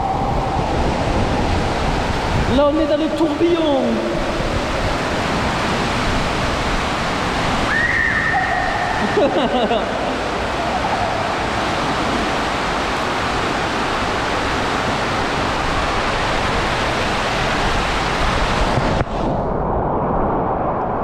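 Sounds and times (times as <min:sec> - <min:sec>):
water rushing in slide tube: 0:03.8 - 0:19.0.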